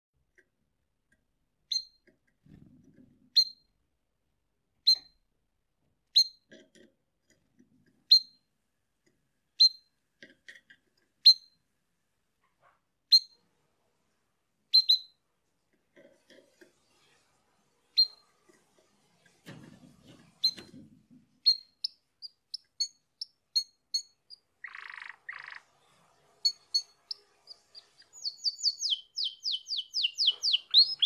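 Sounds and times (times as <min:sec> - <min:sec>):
canary chirping: 0:01.6 - 0:03.8, 0:04.8 - 0:05.3, 0:06.1 - 0:06.6, 0:08.0 - 0:08.5, 0:09.6 - 0:10.0, 0:11.2 - 0:11.6, 0:13.1 - 0:13.5, 0:14.7 - 0:15.2, 0:16.7 - 0:18.4, 0:20.4 - 0:20.8, 0:21.4 - 0:31.0.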